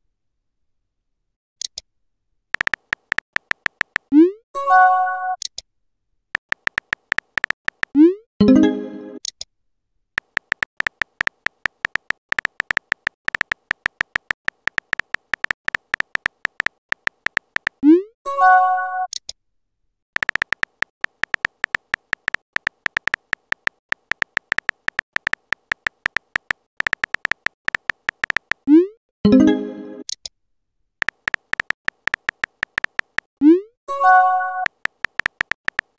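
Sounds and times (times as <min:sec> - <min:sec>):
keyboard typing clicks: 0:02.6 - 0:04.2, 0:06.4 - 0:08.2, 0:10.2 - 0:17.9, 0:20.2 - 0:28.7, 0:31.0 - 0:35.9.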